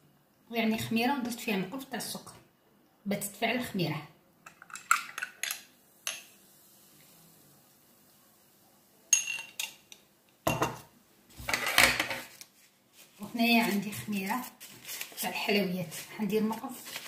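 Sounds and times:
metal spoon clinking against glass: 9.2 - 9.8
glass set down with a knock: 10.5 - 10.8.

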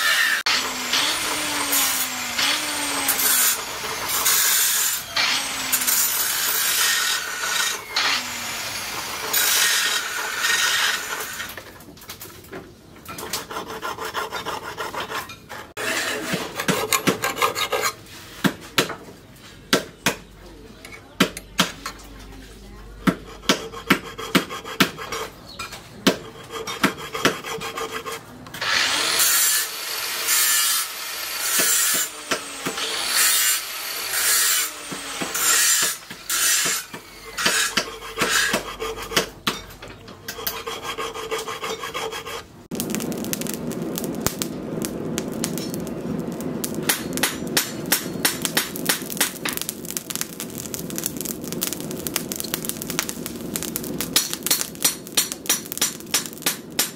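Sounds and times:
file scraping steel blade: 0.0 - 8.4, 9.2 - 11.5, 13.1 - 18.3, 23.0 - 42.5
steady crackling noise: 42.5 - 56.9.

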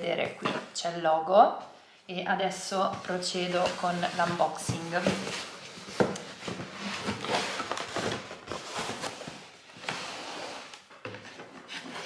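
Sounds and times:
cardboard and packaging rustling: 2.7 - 12.0.

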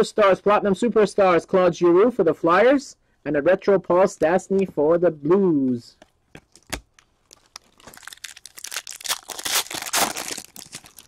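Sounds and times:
foil wrapper tearing and crinkling: 6.5 - 11.0.

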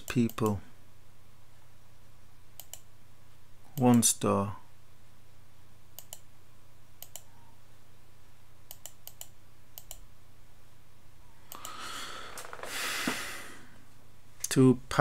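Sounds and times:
computer mouse clicking: 2.6 - 2.9, 6.0 - 6.3, 7.0 - 7.3, 8.7 - 10.0, 11.5 - 11.8.

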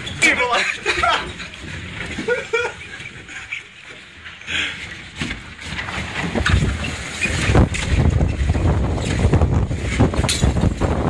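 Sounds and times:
gusty wind buffeting microphone: 5.8 - 11.0.

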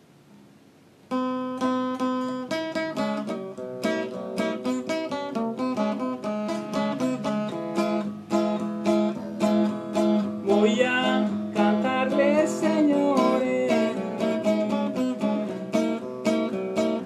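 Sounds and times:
acoustic guitar strumming: 1.0 - 17.0.

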